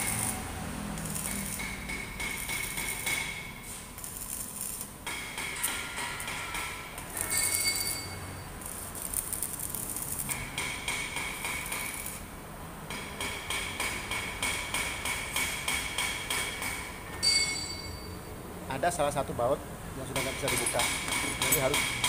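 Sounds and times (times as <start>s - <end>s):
arc welder crackling and hissing: 0.0s - 17.0s.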